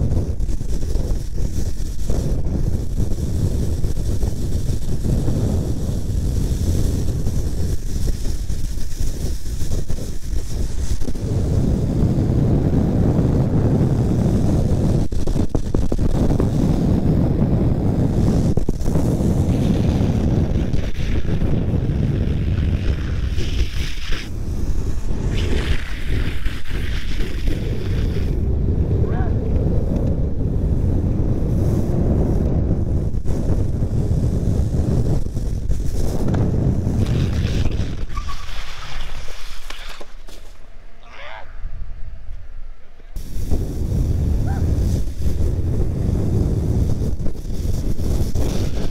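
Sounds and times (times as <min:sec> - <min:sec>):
longboard wheels rumbling on asphalt: 0:00.0 - 0:41.0, 0:41.6 - 0:48.9
wind rushing over microphone: 0:00.0 - 0:48.9
board sliding on wet pavement: 0:00.5 - 0:11.6, 0:18.1 - 0:28.4, 0:33.1 - 0:40.9, 0:43.2 - 0:48.9.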